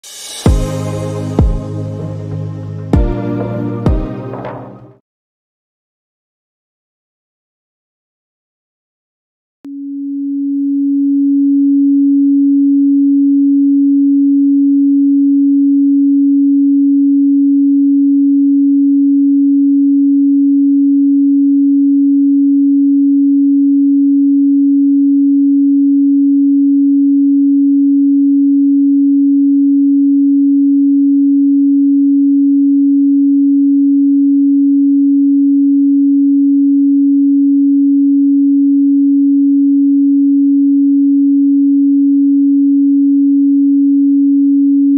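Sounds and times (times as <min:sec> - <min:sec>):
pure sine tone: 0:09.7 - 0:44.9.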